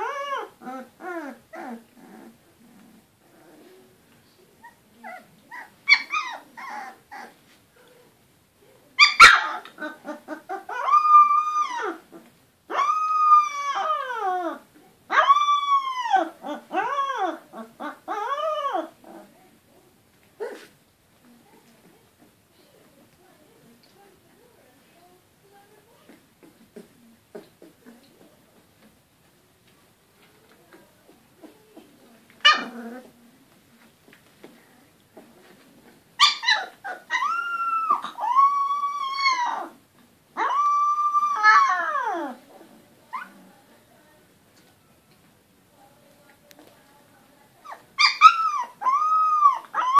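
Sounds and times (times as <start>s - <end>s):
puppies crying: 5.0s - 7.4s, 9.0s - 12.1s, 12.7s - 19.0s, 36.2s - 39.8s, 40.4s - 42.4s, 47.7s - 49.9s.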